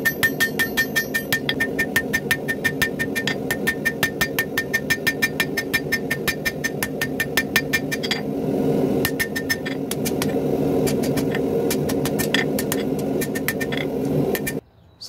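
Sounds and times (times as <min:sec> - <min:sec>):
hammer ringing on anvil: 0:00.0 - 0:08.3, 0:09.0 - 0:14.6
steady low rumble: 0:01.3 - 0:14.6.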